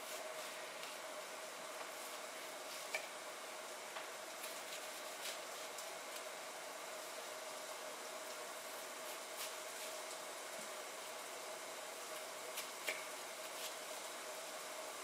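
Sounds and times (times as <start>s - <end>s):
frying hiss: 0.0s - 15.0s.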